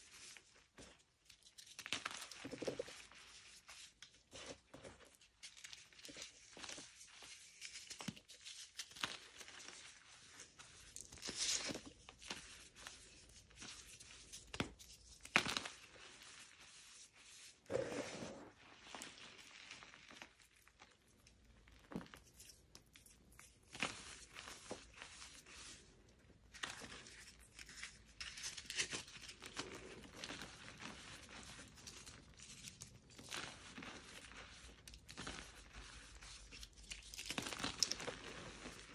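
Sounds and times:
hands crushing chalk blocks: 0:36.4 - 0:38.6.

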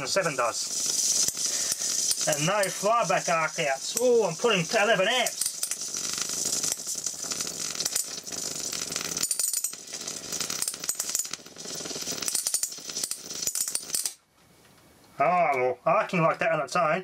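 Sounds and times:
electric arc buzzing and crackling: 0:00.0 - 0:13.6.

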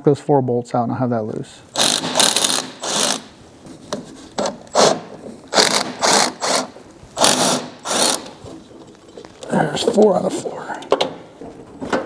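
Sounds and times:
ratchet wrench clicking: 0:01.8 - 0:03.2.

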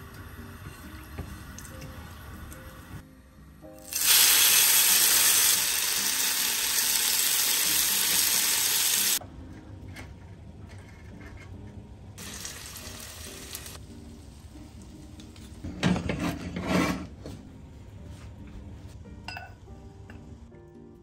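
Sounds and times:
soft background music: 0:00.0 - 0:21.0
food sizzling in a skillet: 0:03.8 - 0:09.2, 0:12.2 - 0:13.8.

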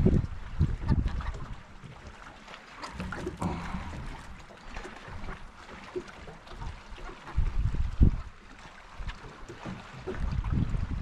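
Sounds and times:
wind buffeting microphone: 0:00.0 - 0:01.7, 0:07.2 - 0:08.4, 0:10.0 - 0:11.0.

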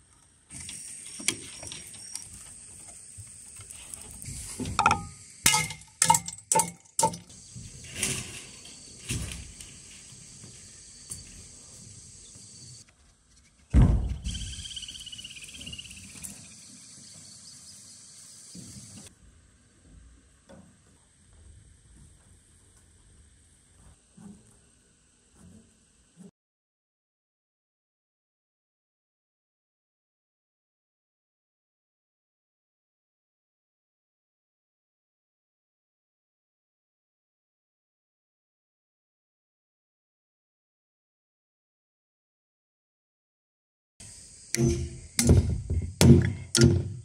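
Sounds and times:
insects buzzing: 0:00.5 - 0:06.2, 0:07.0 - 0:12.8, 0:14.1 - 0:19.1, 0:44.0 - 0:47.0
bamboo poles knocking: 0:04.7 - 0:07.3, 0:44.6 - 0:47.0
heavy thud: 0:13.8 - 0:14.4, 0:44.6 - 0:47.0.

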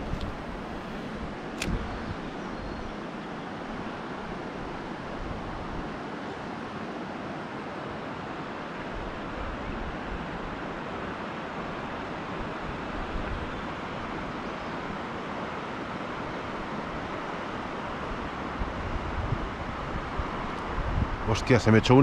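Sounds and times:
wind buffeting microphone: 0:00.0 - 0:03.0, 0:18.2 - 0:22.0.

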